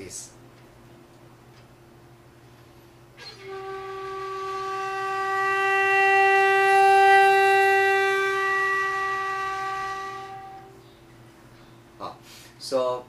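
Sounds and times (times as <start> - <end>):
end-blown flute long note: 3.2 - 10.8.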